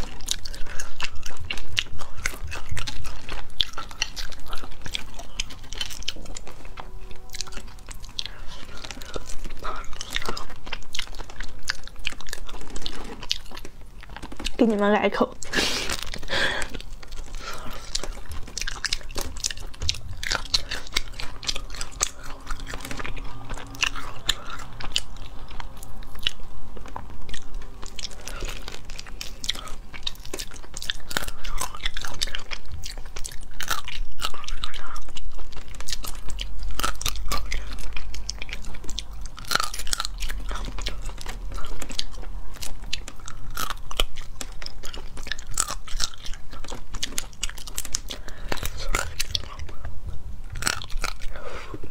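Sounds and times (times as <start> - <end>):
crayfish shells cracking: 0.0 - 14.6, 15.4 - 49.9
biting and chewing: 0.0 - 51.9.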